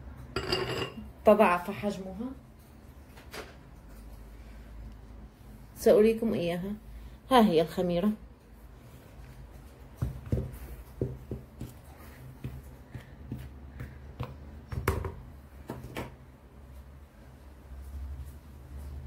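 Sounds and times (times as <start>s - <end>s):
hand stirring flour in bowl: 8.6s - 14.7s.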